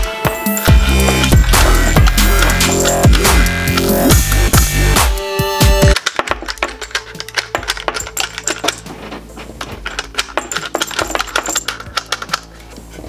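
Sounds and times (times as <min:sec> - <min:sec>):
brass cartridges clinking: 0:00.0 - 0:13.0
sharp lever clicks: 0:05.9 - 0:08.9.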